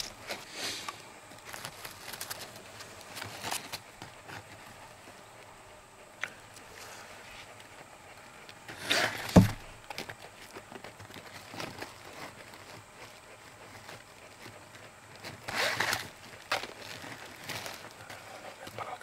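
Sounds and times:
rustling: 0.0 - 19.0
sharp knock: 9.3 - 9.6.

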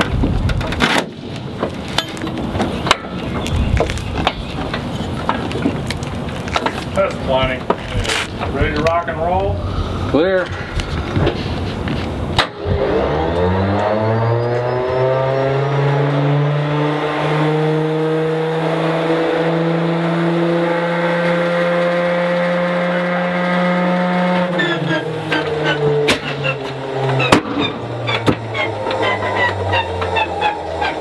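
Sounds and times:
engine turning over with pops: 0.0 - 9.0, 10.8 - 14.1, 23.8 - 31.0
engine sharp bangs: 12.2 - 31.0
engine starter whine: 24.5 - 31.0.

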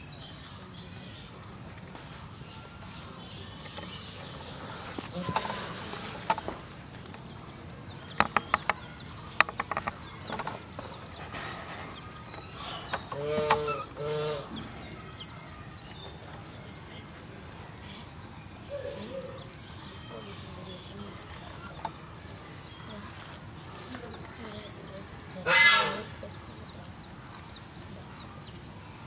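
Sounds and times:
chicks peeping: 0.1 - 29.0
hen clucking: 9.4 - 14.8, 21.2 - 28.0.

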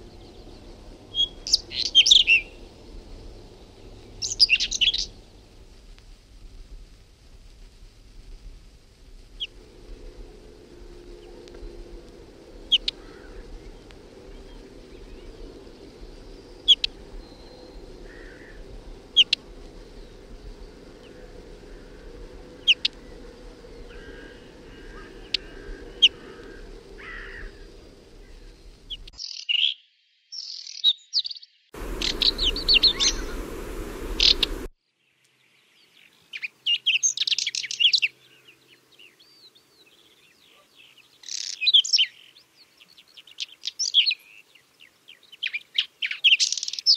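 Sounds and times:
rapid bird song bursts: 0.0 - 2.7, 3.6 - 5.3, 31.8 - 34.7
bird sharp high calls: 31.8 - 34.7.

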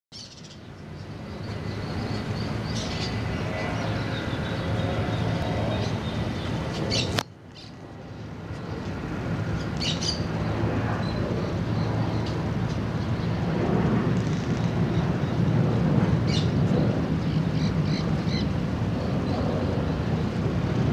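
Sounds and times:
birds chirping: 0.1 - 7.8, 9.5 - 13.4
distant road traffic rumble: 0.2 - 20.9.

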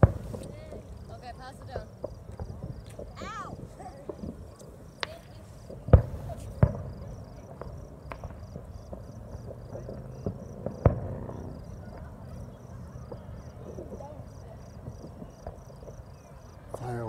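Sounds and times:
crickets chirping: 0.0 - 17.0
distant fireworks bangs: 0.0 - 17.0.

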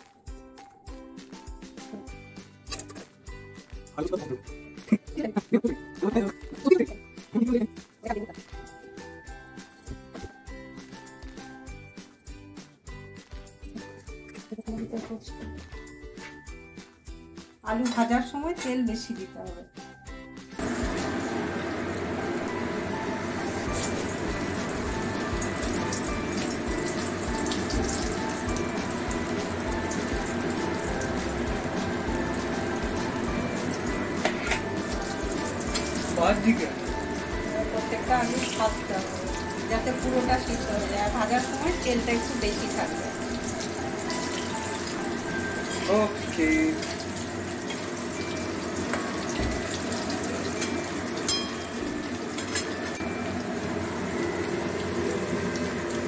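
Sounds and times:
potatoes sizzling in hot oil: 20.5 - 56.0.

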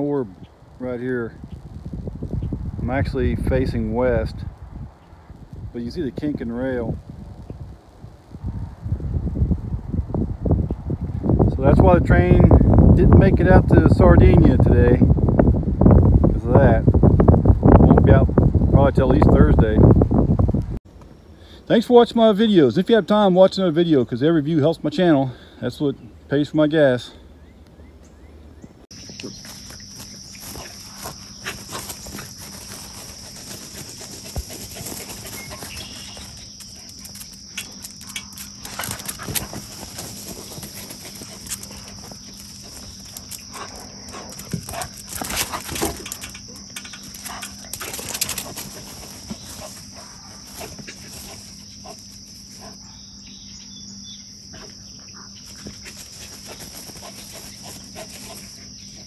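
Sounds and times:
crickets chirping: 17.2 - 59.0
dogs scuffling in play: 29.0 - 52.7, 55.4 - 59.0.

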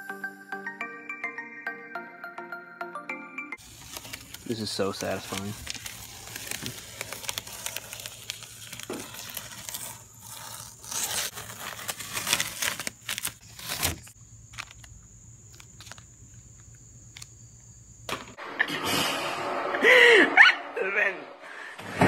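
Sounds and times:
tape peeling and crumpling: 3.6 - 16.4.

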